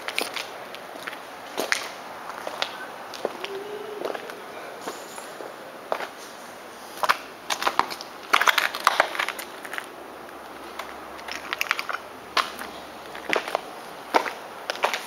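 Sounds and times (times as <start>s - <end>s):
footsteps crunching on rubble: 0.0s - 3.4s, 7.0s - 15.0s.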